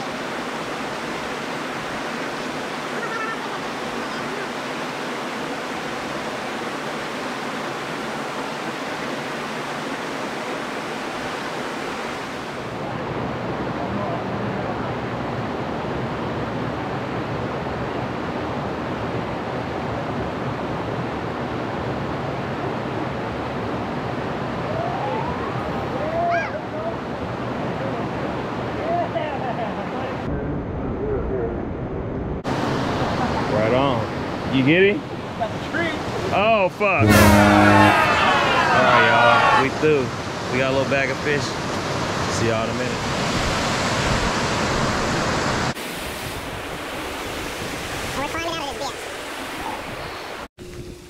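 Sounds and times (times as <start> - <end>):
creek rushing over rocks: 0.0 - 14.8, 32.5 - 50.5.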